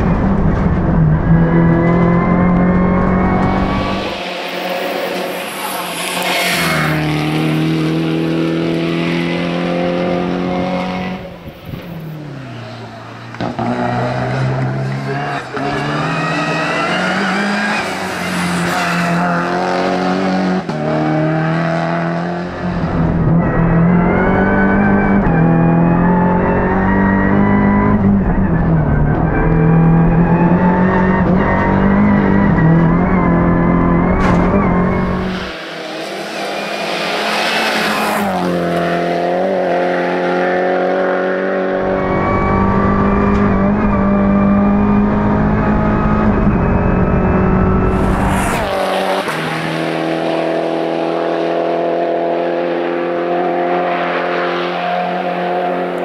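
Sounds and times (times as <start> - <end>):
rushing sound: 0.0 - 8.9, 34.2 - 39.9, 45.9 - 50.7
race car engine at high revs: 0.0 - 56.0
lower engine note: 38.0 - 52.2.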